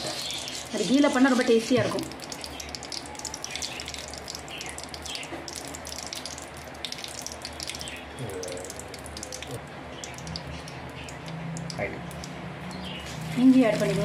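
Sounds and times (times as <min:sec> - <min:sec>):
ghee sizzling in a pan: 0:00.0 - 0:08.1.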